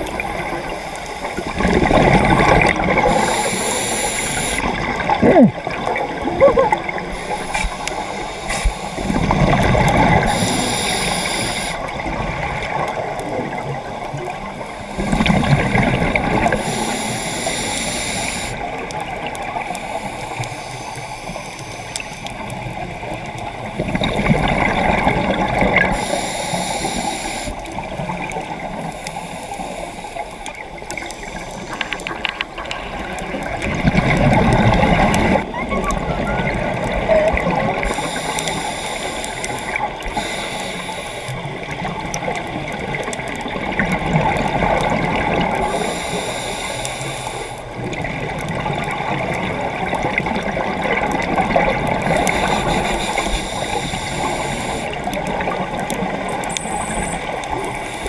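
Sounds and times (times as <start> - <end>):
exhaled bubbles gurgling: 0.0 - 58.0
short high hiss: 7.2 - 9.1, 10.3 - 11.8.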